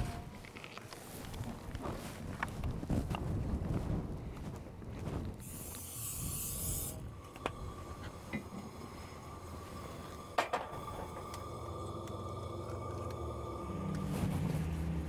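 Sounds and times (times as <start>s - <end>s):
aerosol spray can hissing: 5.4s - 7.7s.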